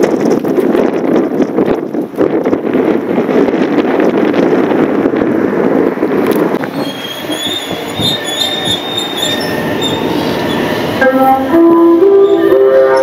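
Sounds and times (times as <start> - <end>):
train wheels rumbling: 0.0 - 13.0
high squeal on rails: 6.6 - 13.0.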